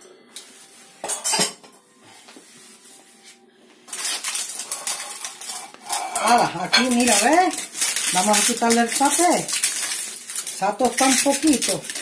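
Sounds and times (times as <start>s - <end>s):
baking paper crackling: 3.9s - 12.0s.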